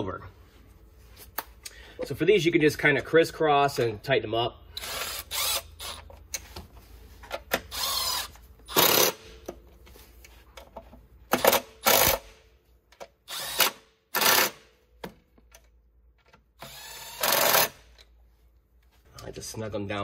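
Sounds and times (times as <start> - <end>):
cordless ratchet running: 16.6 - 17.8.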